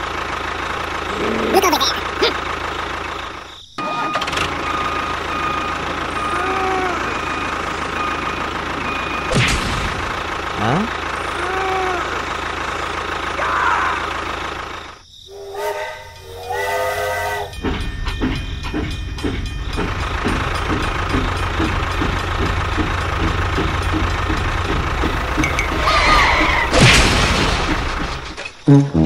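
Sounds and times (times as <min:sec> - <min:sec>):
electronic toy train chugging: 0:10.1 - 0:26.6
electronic toy train whistle: 0:15.3 - 0:17.6.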